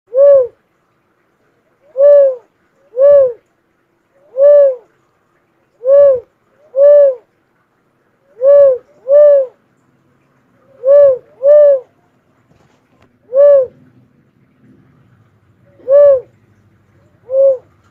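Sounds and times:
dove cooing: 0.1 - 0.6, 1.8 - 3.4, 4.2 - 5.0, 5.8 - 7.3, 8.3 - 9.6, 10.6 - 11.9, 13.2 - 13.9, 14.8 - 17.9.

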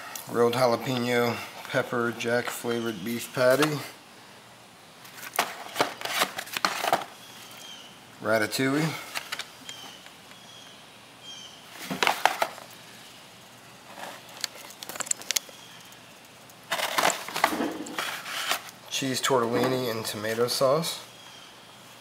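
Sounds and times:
ration packets rustling and crackling: 5.0 - 7.4, 8.8 - 10.2, 11.8 - 12.8, 13.9 - 18.8.

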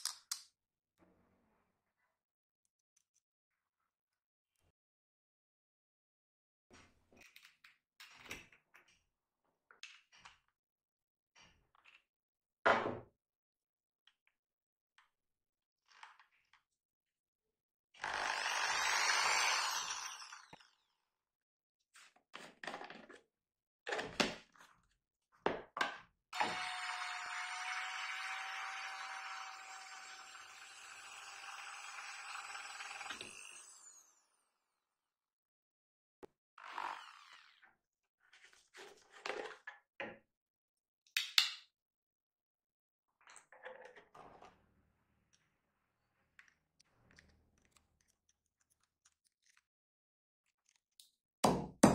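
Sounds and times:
electric drill whining: 18.0 - 20.9, 26.4 - 34.3.

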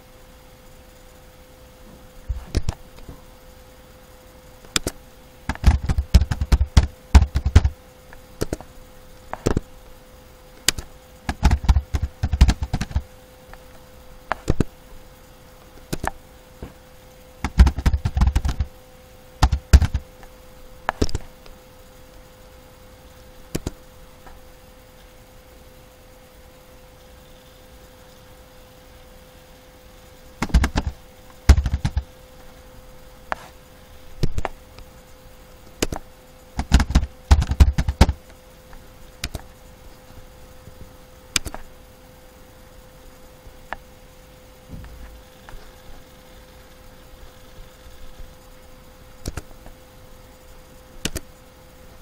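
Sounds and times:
faint steady hum: 0.0 - 52.0
keyboard typing: 4.7 - 7.8, 10.6 - 13.0, 15.9 - 16.2, 17.4 - 18.7, 19.4 - 20.0, 30.4 - 32.1, 36.6 - 38.2, 39.2 - 39.4, 49.2 - 49.5, 51.0 - 51.2
mouse clicks: 4.7 - 8.7, 10.6 - 13.6, 15.8 - 16.2, 20.9 - 21.2, 23.5 - 23.8, 35.8 - 38.2, 39.2 - 39.5, 41.3 - 41.6, 49.2 - 49.6, 51.0 - 51.3.

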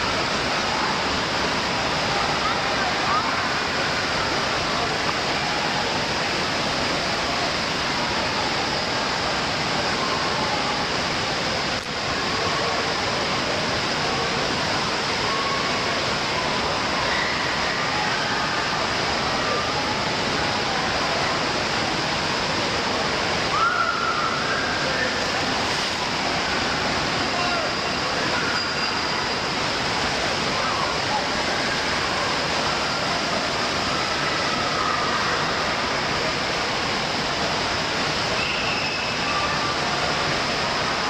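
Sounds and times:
running water rushing: 0.0 - 41.0
children shouting and chattering: 1.7 - 6.6, 22.9 - 36.9.

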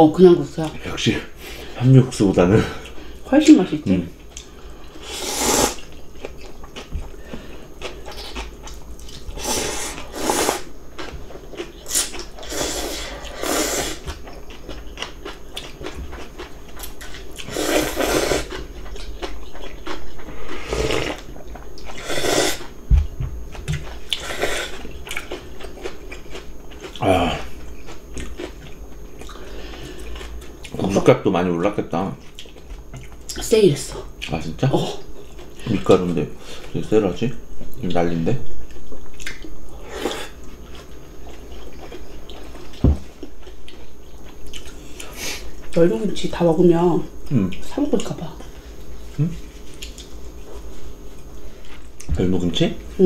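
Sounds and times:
slurping noodles: 5.0 - 5.9, 9.3 - 10.7, 11.8 - 14.1, 17.4 - 18.6, 20.4 - 21.2, 21.9 - 22.7
chewing: 5.8 - 13.4, 14.0 - 22.0, 23.4 - 30.8, 32.2 - 33.4, 40.3 - 45.8, 49.1 - 52.1.

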